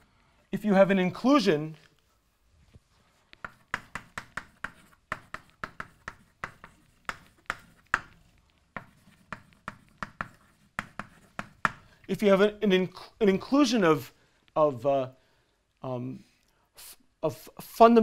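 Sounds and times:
chalk writing on blackboard: 3.1 - 11.9.

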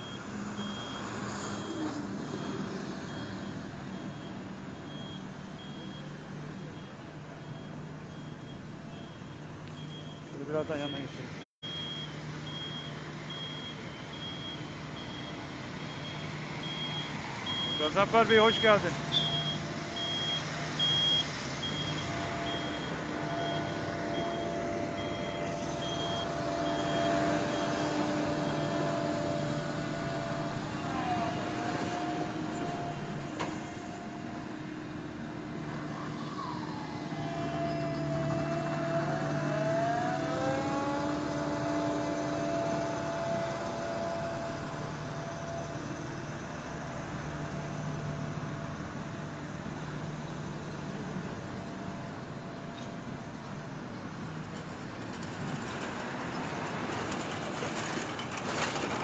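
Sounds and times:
reversing alarm beeping: 0.0 - 29.0
diesel engines running: 0.0 - 59.0
passing trucks and cars: 0.0 - 59.0
road roller on gravel: 0.0 - 59.0.

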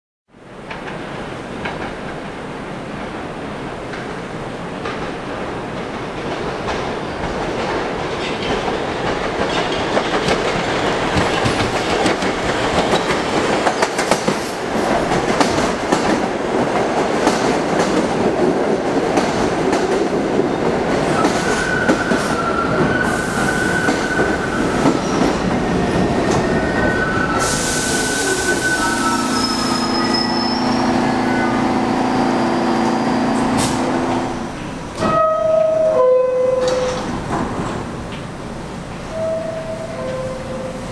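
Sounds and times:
train wheels rumbling on rail: 0.5 - 40.9
air brake hiss: 27.4 - 30.4
wheel squeals: 28.0 - 31.6.

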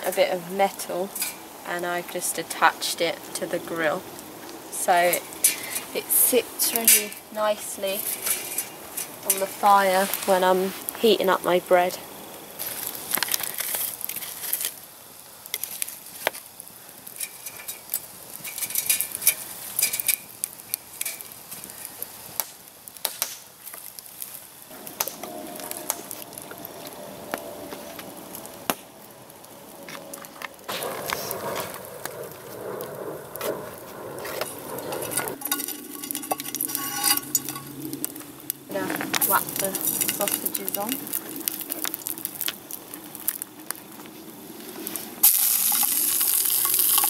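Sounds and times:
campfire crackling: 0.0 - 47.0
sharp fire pops: 6.6 - 47.0
burning logs knocking: 12.6 - 14.8, 15.4 - 44.2.

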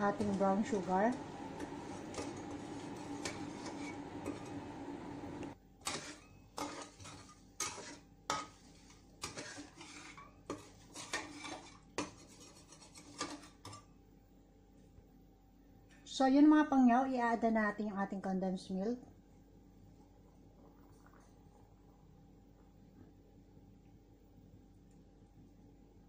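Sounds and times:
metal spatula scraping wok: 0.0 - 13.8
steady hum and hiss: 0.0 - 26.0.

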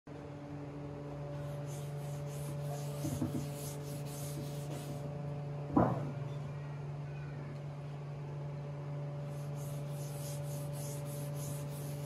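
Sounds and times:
steady low hum: 0.1 - 12.0
cloth rubbing on wood: 1.4 - 5.1, 9.3 - 12.0.

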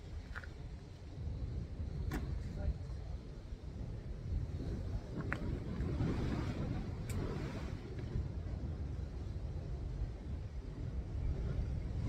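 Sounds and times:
wind on microphone: 0.0 - 12.0
sea swell surging against rocks: 5.4 - 8.2.

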